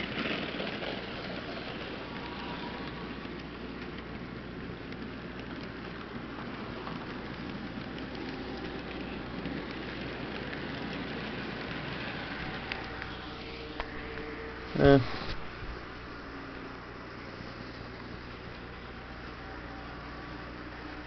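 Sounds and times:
model train wheels rattling: 0.0s - 13.7s.

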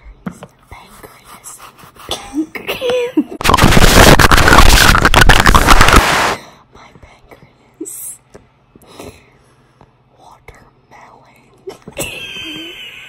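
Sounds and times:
soft whispering: 0.6s - 1.8s, 6.6s - 8.2s, 10.1s - 11.6s
loud distorted rushing crackle: 3.4s - 6.4s.

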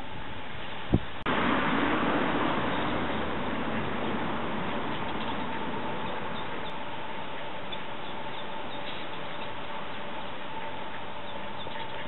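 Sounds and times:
constant low hum: 0.0s - 12.0s
ducklings peeping: 2.6s - 12.0s.

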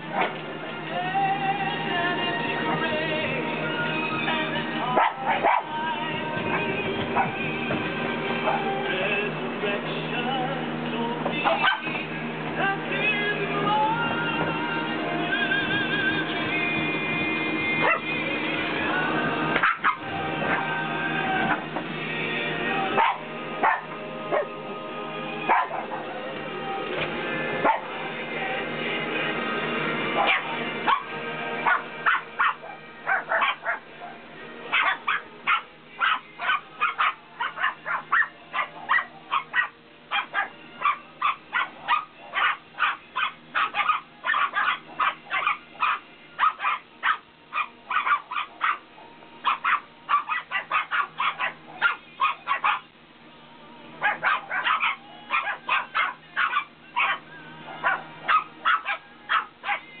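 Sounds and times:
puppies barking and yipping: 0.0s - 0.5s, 4.2s - 5.8s, 6.4s - 8.8s, 11.3s - 12.0s, 17.7s - 18.2s, 19.4s - 21.8s, 22.9s - 24.6s, 25.4s - 26.3s, 27.5s - 28.0s, 30.0s - 53.0s, 54.0s - 60.0s.

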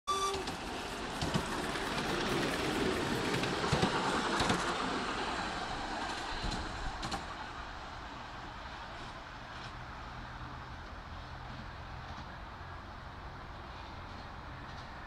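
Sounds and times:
steam whistle: 0.1s - 0.6s.

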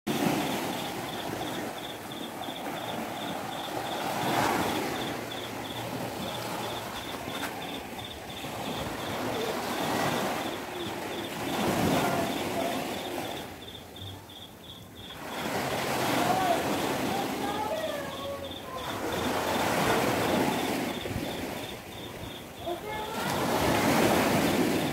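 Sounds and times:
sea waves breaking on beach: 0.1s - 24.9s
faint high-pitched pulse: 0.2s - 13.5s.

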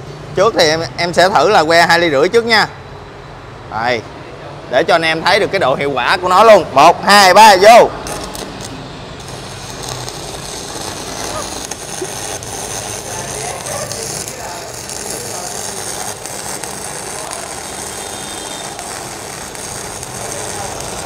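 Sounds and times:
welding arc crackling sizzle: 8.0s - 21.0s.

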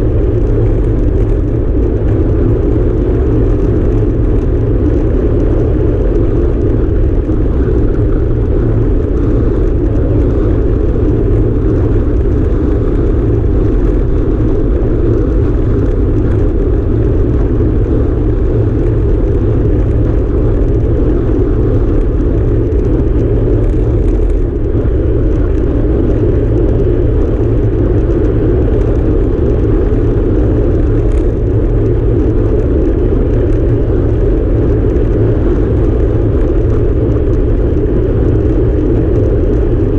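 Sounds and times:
tyres rolling on asphalt: 0.0s - 39.9s
wind buffeting microphone: 0.0s - 39.9s.

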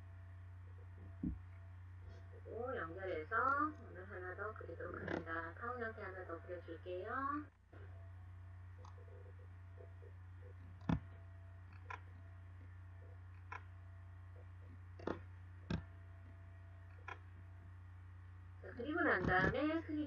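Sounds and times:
low electrical hum: 0.0s - 20.0s.

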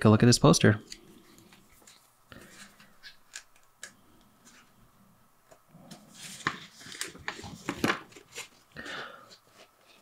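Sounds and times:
paper rustling and scraping: 5.9s - 8.6s.

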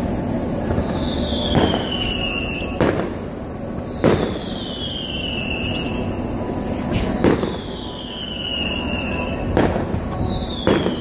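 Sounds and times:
firework bangs: 0.0s - 11.0s
low rumble: 0.0s - 11.0s
firework whistles sliding down: 0.6s - 11.0s.

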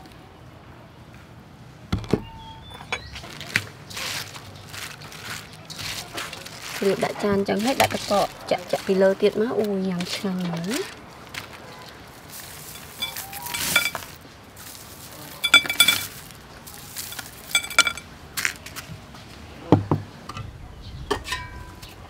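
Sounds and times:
ice clinking against glass: 12.6s - 14.2s, 15.3s - 16.2s, 17.0s - 18.1s.

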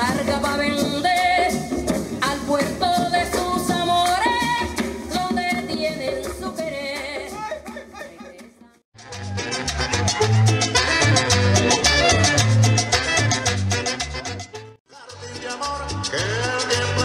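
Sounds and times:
person singing with accompaniment: 14.9s - 17.0s.

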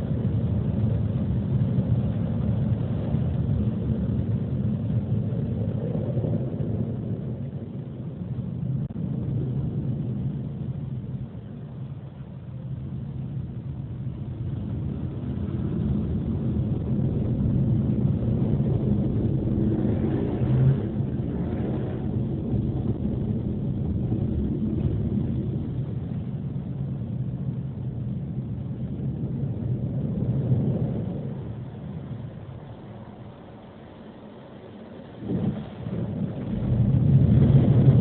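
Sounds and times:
car wash rumbling: 13.7s - 38.0s.

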